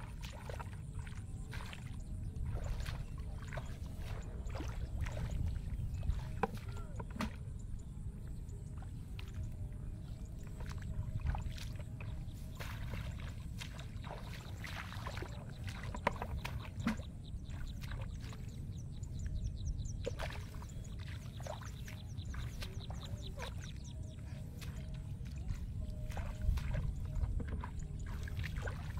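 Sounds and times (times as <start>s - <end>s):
hands splashing in wet grass: 0.0s - 5.5s, 10.7s - 18.5s, 20.1s - 28.9s
low steady rumble: 0.0s - 28.9s.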